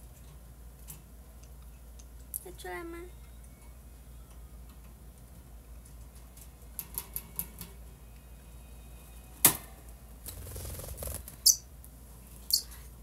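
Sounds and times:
bird wings fluttering: 10.3 - 11.5
bird chirping: 11.3 - 11.7, 12.5 - 12.7.

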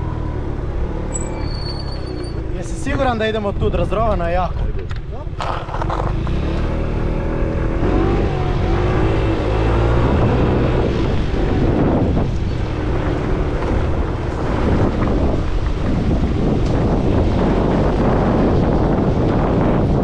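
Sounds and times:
wind buffeting microphone: 6.0 - 20.0.

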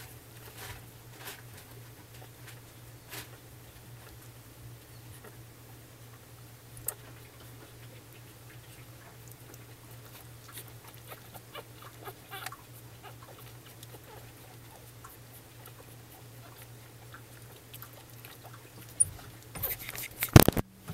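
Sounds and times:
puppies suckling wet clicks: 6.1 - 20.6
puppy squeaks: 10.1 - 16.7, 18.8 - 20.4.

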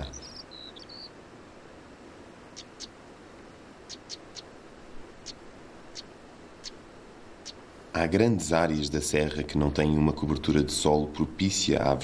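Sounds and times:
bird whistling: 0.0 - 1.1
soft steady hiss: 0.0 - 12.0.

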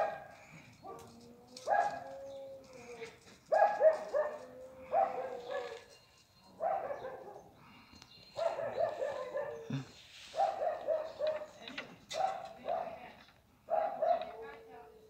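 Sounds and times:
dog barking: 0.0 - 2.1, 3.5 - 5.9, 6.6 - 7.5, 8.4 - 13.0, 13.7 - 14.6.

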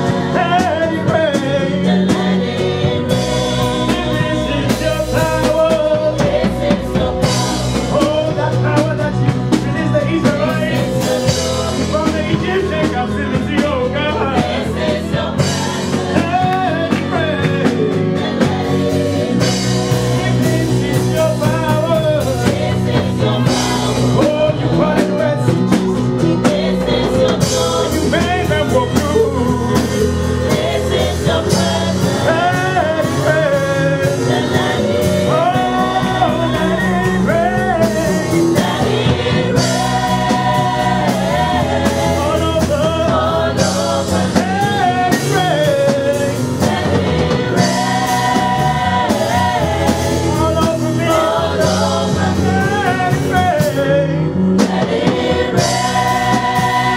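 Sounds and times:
backing singers: 0.0 - 56.9
band with drum kit: 0.0 - 56.9
congregation singing along: 0.0 - 56.9
lead singer singing: 0.0 - 56.9.

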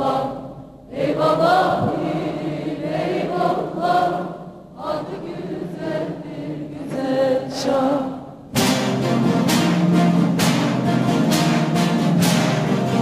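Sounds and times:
large choir singing: 0.0 - 13.0.

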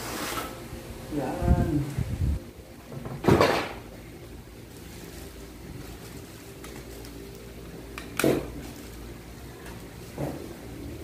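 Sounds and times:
steady low hum: 0.0 - 11.0
plastic packaging crinkling: 4.3 - 11.0.

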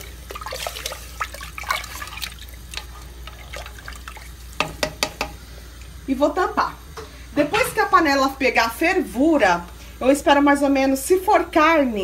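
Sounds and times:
soup sloshing in a pot: 0.0 - 6.0.

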